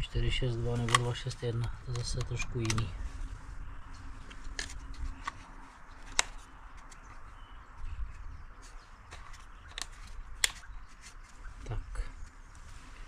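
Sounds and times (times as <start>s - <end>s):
plastic clicks: 0.8s - 3.0s, 4.2s - 7.2s, 9.1s - 11.2s.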